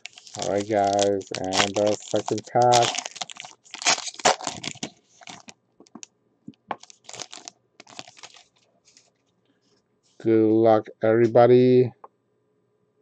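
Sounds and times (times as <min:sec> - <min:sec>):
foil wrapper tearing: 0:00.0 - 0:05.5, 0:06.8 - 0:08.5
foil crinkling: 0:00.0 - 0:06.1, 0:06.7 - 0:09.1.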